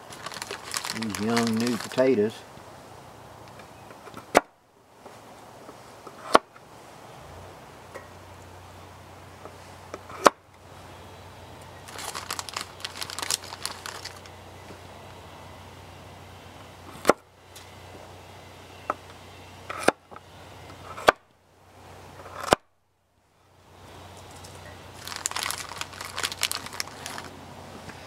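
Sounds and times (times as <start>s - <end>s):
quick crackling and rustling: 0.0s - 2.4s, 11.8s - 14.4s, 24.2s - 27.4s.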